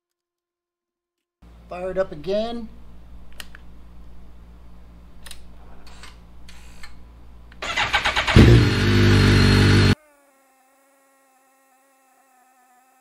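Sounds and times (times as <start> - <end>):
electric starter cranking: 7.6 - 10.0
motorcycle engine running loudly: 7.6 - 10.0.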